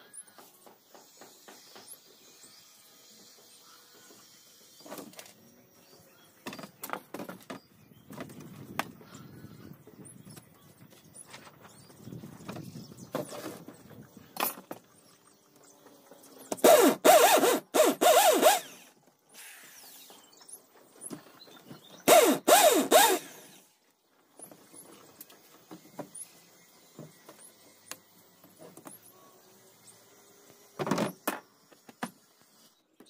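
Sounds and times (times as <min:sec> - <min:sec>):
electric drill boring into wood: 0:16.6 - 0:19.9, 0:22.1 - 0:23.6.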